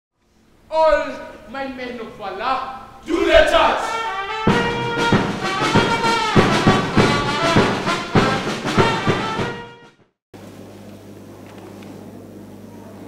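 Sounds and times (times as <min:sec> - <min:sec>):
percussive hits: 0:03.8 - 0:09.8.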